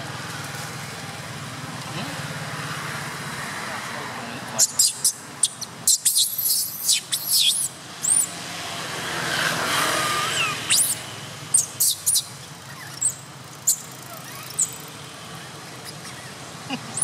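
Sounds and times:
vehicle passing: 0:00.1 - 0:17.0
baby monkey squealing: 0:04.6 - 0:08.4, 0:09.8 - 0:17.0.

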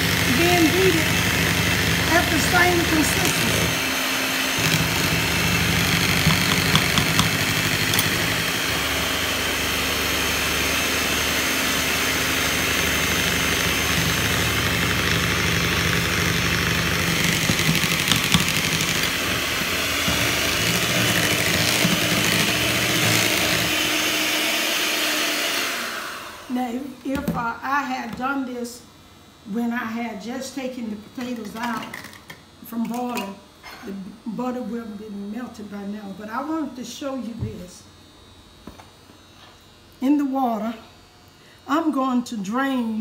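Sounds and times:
electric hand mixer running: 0:00.0 - 0:26.9.

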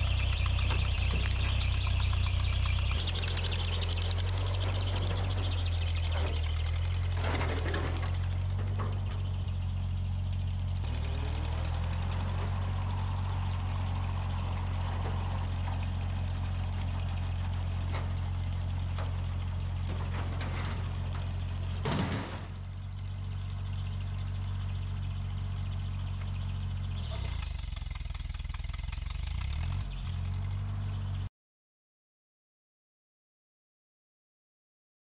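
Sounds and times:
tractor engine running: 0:00.0 - 0:31.3
knocks and clunks: 0:04.3 - 0:09.4, 0:14.7 - 0:22.8.

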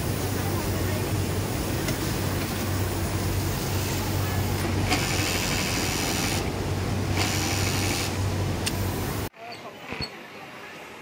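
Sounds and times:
high whirring hiss: 0:00.0 - 0:09.3
sewing machines humming: 0:00.0 - 0:09.3.

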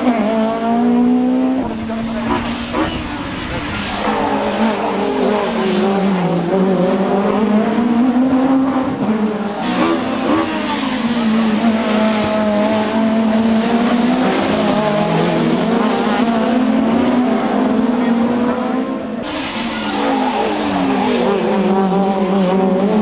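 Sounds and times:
race cars passing at high revs: 0:00.0 - 0:23.0.

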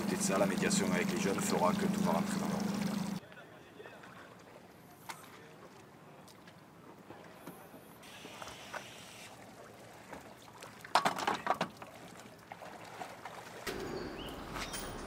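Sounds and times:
faint lapping water: 0:00.0 - 0:15.0
scooters knocking and clattering: 0:11.0 - 0:11.8.

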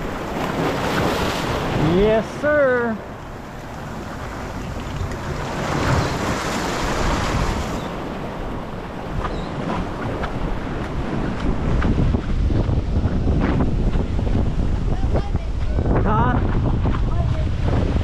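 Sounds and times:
surf washing among boulders: 0:00.0 - 0:18.0
wind buffeting microphone: 0:00.0 - 0:18.0.

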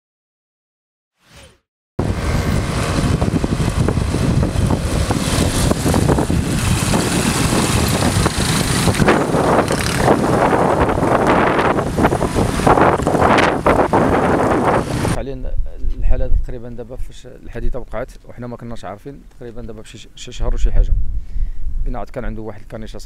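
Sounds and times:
motorbike engines running: 0:02.0 - 0:15.2
wind rumble on microphone: 0:02.0 - 0:17.0, 0:20.3 - 0:22.3.

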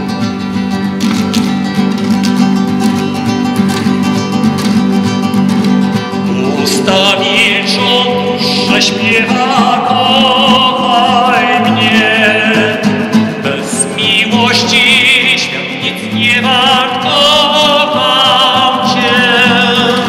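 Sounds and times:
classical guitar: 0:00.0 - 0:20.0
man singing with vibrato: 0:06.2 - 0:20.0.

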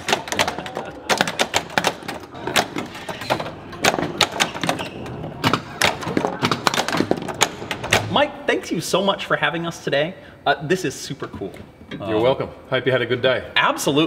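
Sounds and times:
pinball flippers and solenoids clacking: 0:00.0 - 0:08.2.

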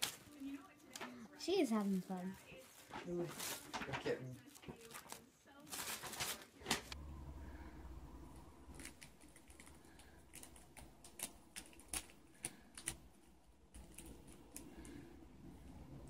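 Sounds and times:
plastic bag crinkling: 0:00.0 - 0:07.0.

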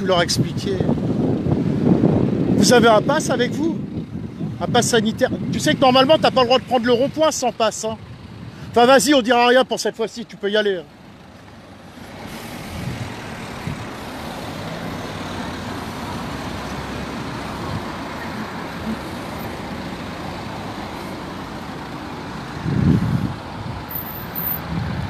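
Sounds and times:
engine and tyre noise: 0:00.0 - 0:25.0
cars driving past: 0:10.2 - 0:25.0.

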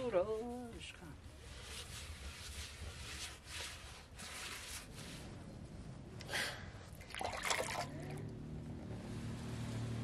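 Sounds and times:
broom scraping: 0:01.4 - 0:05.4.

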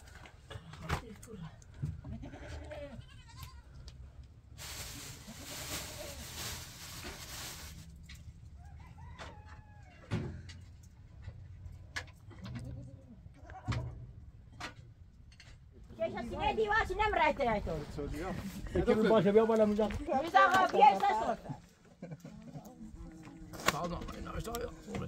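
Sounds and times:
goats bleating: 0:02.1 - 0:03.8.

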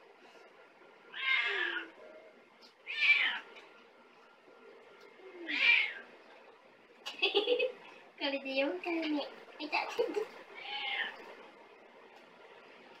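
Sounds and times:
cat meowing: 0:01.1 - 0:02.0, 0:02.9 - 0:03.5, 0:05.4 - 0:06.1, 0:10.6 - 0:11.2.

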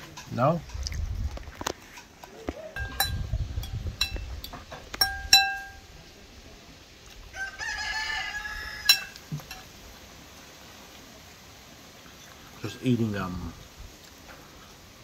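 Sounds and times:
spoon clinking against ceramic bowl: 0:02.8 - 0:04.3, 0:05.0 - 0:05.8, 0:08.9 - 0:09.7
rooster crowing: 0:07.3 - 0:09.4.

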